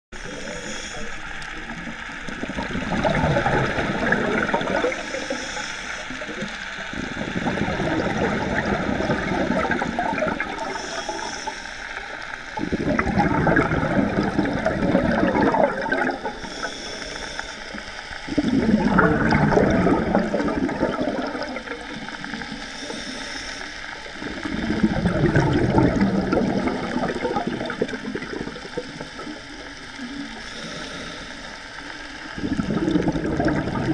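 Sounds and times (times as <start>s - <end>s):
bubbling exhaled air underwater: 0.1s - 33.9s
thin hiss of inhaling: 0.2s - 2.2s, 4.9s - 7.0s, 10.5s - 12.6s, 16.2s - 18.4s, 22.1s - 24.2s, 28.6s - 32.4s.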